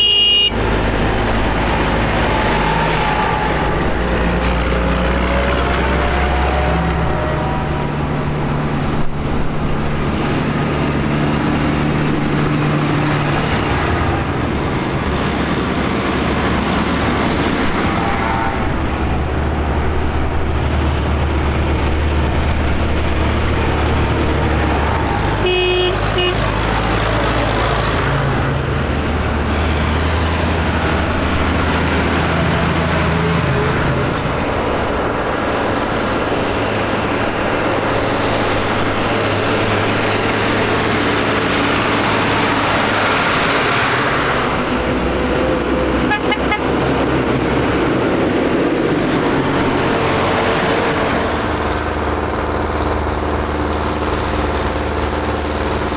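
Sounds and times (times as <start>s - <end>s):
short horn toot: 0.0s - 0.6s, 25.4s - 26.4s
tractor diesel engines passing: 0.0s - 55.9s.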